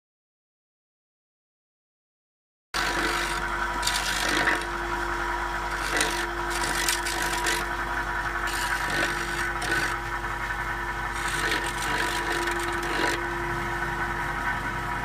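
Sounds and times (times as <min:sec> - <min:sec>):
blades scraping mortar off brick: 0:02.8 - 0:04.8, 0:05.7 - 0:07.7, 0:08.4 - 0:10.0, 0:11.1 - 0:13.3
brick cleaning machine humming: 0:02.8 - 0:15.0.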